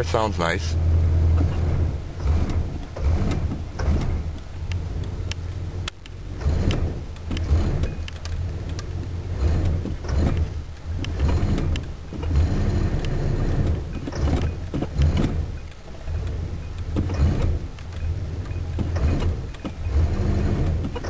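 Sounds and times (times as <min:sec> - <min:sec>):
car engine humming: 0:00.0 - 0:21.0
sharp clicks: 0:02.4 - 0:08.9.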